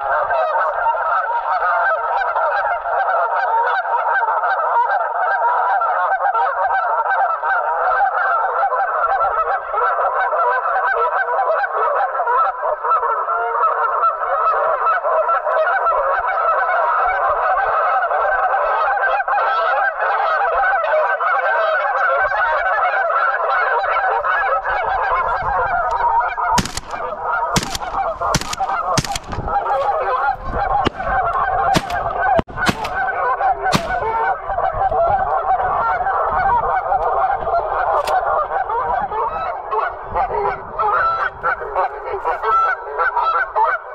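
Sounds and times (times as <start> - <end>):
geese honking: 0.0 - 43.9
shotgun shots: 26.6 - 34.5.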